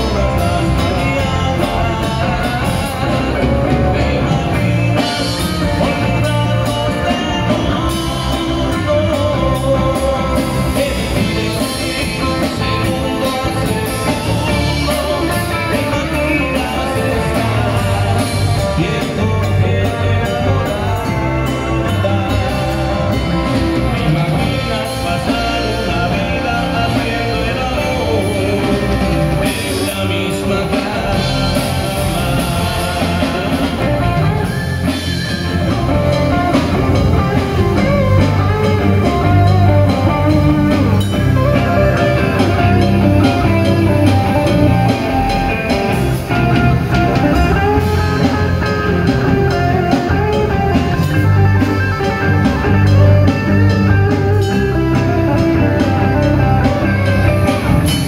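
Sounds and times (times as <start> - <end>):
live rock band playing: 0.0 - 58.0.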